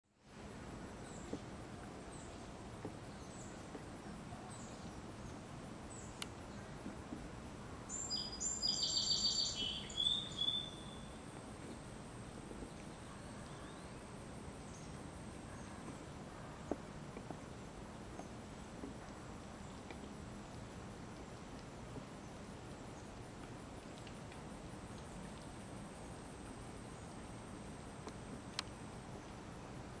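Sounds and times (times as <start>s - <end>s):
steady background hiss: 0.1s - 30.0s
rapid trilling bird song: 8.0s - 11.0s
faint high bird chirps: 8.0s - 11.2s.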